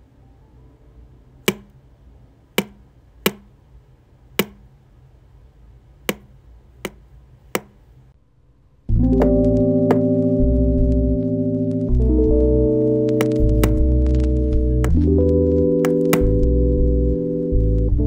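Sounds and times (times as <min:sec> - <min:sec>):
lo-fi background music: 0:08.9 - 0:18.0.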